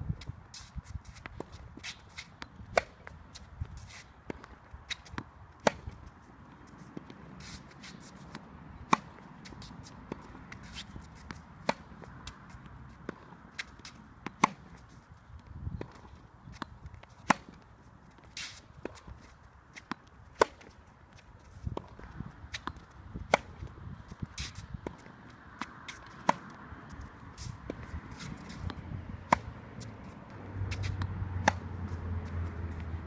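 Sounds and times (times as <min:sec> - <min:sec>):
tennis ball off racket: 0:00.2 - 0:33.0
shoe scuffs and footsteps: 0:03.1 - 0:12.7, 0:20.6 - 0:33.0.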